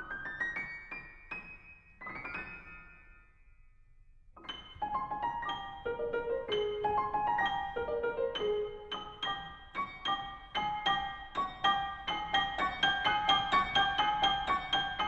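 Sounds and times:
piano notes: 4.4 - 15.0.

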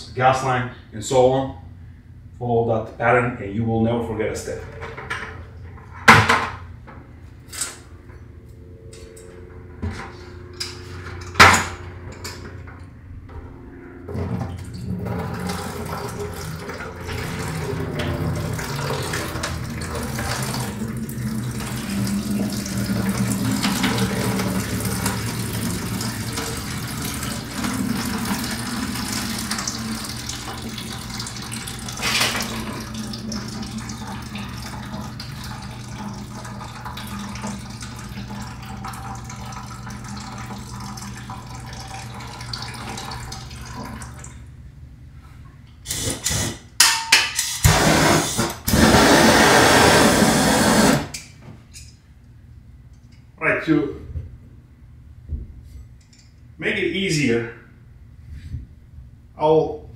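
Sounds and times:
water pouring into plastic bucket: 14.6 - 44.3.

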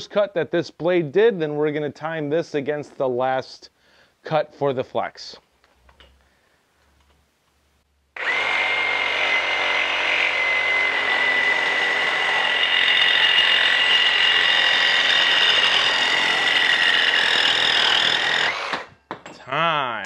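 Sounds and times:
reciprocating saw cutting pipe: 8.2 - 18.9.

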